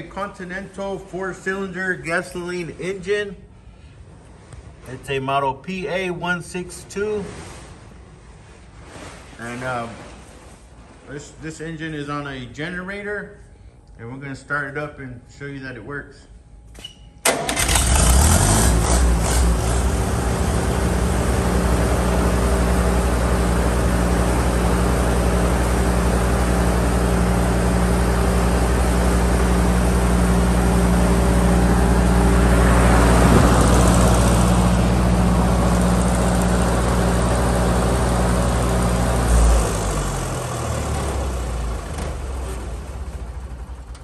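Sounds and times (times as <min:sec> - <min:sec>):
generator engine running: 0:17.2 - 0:44.0.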